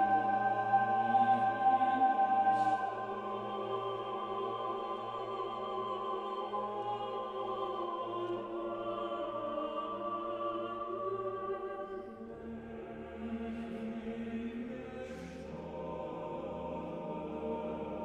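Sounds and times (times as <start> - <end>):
slow choral music: 0.0 - 18.0.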